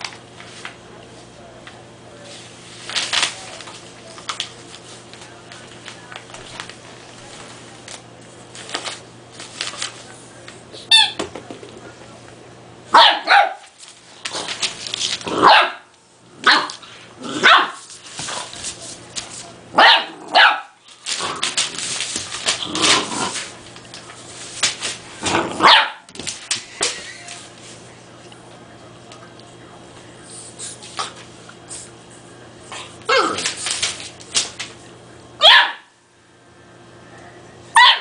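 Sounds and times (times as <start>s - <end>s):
puppy barking: 12.9s - 13.7s, 15.4s - 17.8s, 19.8s - 20.8s, 25.5s - 26.1s, 35.4s - 35.9s, 37.7s - 38.0s.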